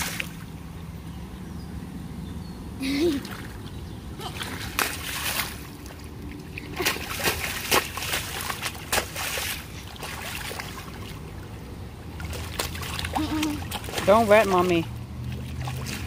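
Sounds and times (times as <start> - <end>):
sharp water splashes: 0.0 - 0.5, 3.2 - 16.0
rainwater running along gutter: 4.2 - 16.0.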